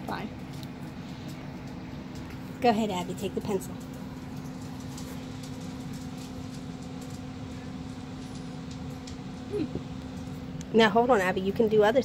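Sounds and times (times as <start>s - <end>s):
machinery low hum: 0.0s - 12.0s.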